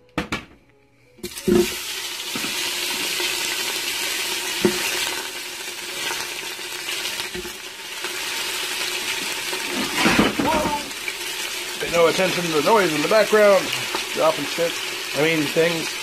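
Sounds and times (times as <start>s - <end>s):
knock: 0.2s - 0.6s
chicken sizzling in hot oil: 1.2s - 16.0s.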